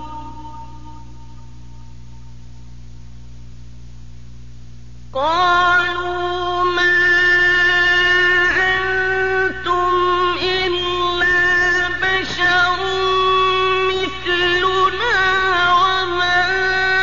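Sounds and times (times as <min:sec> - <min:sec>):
man chanting melodically: 0:05.2 - 0:17.0.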